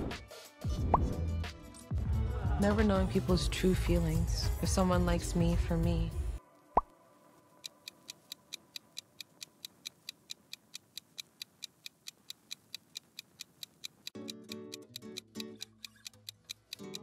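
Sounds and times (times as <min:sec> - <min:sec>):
clock ticking: 0:07.6 - 0:17.0
music bed: 0:14.0 - 0:17.0.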